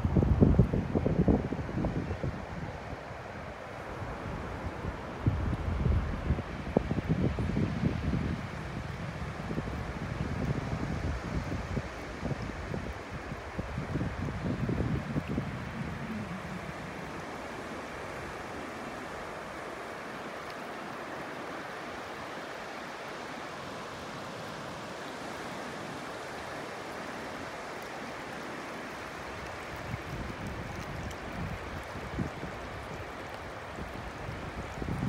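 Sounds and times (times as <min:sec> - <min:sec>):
wind buffeting microphone: 0:00.0 - 0:19.6, 0:29.3 - 0:35.0
water washing over sand: 0:00.0 - 0:35.0
wind: 0:00.0 - 0:35.0.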